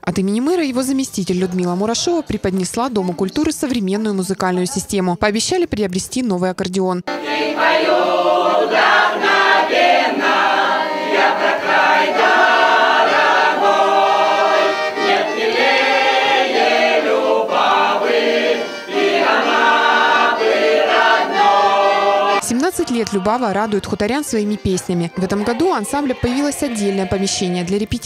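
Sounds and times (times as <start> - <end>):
button accordion: 7.1 - 28.0
mixed choir singing folk song: 7.1 - 28.0.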